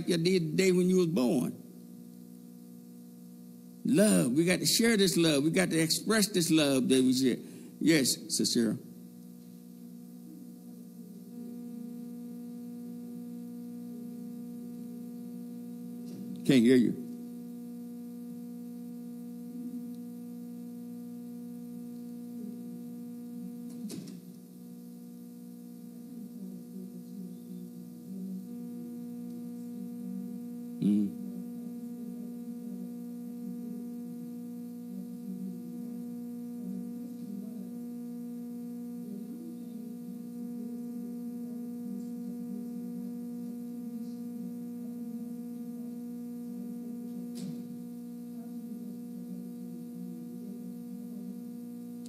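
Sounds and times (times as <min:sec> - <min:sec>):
electrical mains hum: 0:00.0 - 0:52.0
faint person talking: 0:30.8 - 0:31.4.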